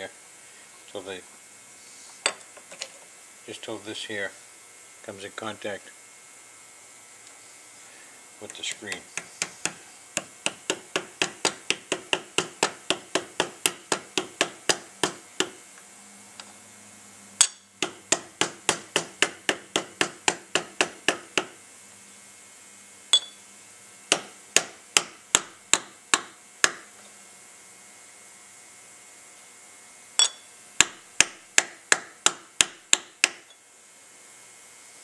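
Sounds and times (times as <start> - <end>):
hammer tapping on metal punch: 8.9 - 15.6, 17.4 - 21.6, 23.2 - 23.4, 24.1 - 26.9, 30.2 - 33.6.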